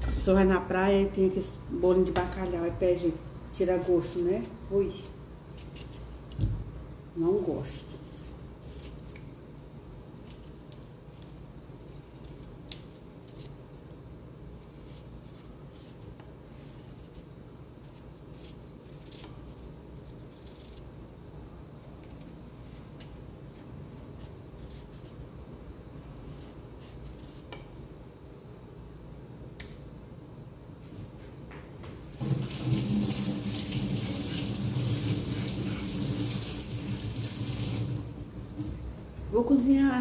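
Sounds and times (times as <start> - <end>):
knife scraping vegetable skin: 4.0 - 6.4, 7.9 - 9.3, 10.2 - 13.6, 14.6 - 21.0, 21.8 - 25.2, 26.0 - 27.6.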